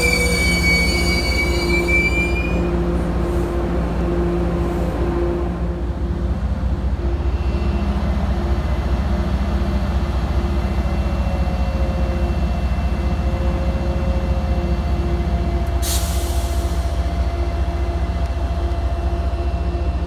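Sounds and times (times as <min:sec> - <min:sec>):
locomotive engine hum: 0:00.0 - 0:20.0.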